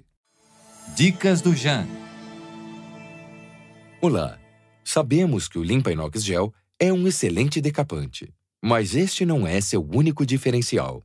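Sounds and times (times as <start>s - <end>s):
soft music with sustained chords: 0.3s - 5.4s.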